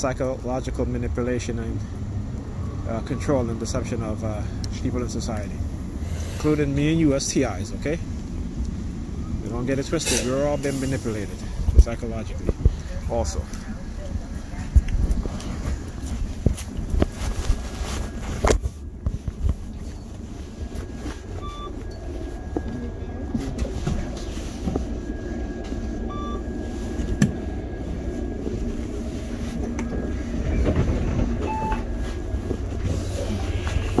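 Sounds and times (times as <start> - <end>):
moving vehicle rumble: 0.0 - 34.0.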